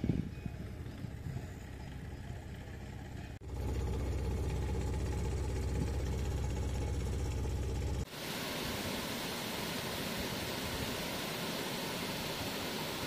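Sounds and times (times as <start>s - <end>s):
engine idling: 0.3s - 8.2s
faint low rumble: 0.5s - 8.1s.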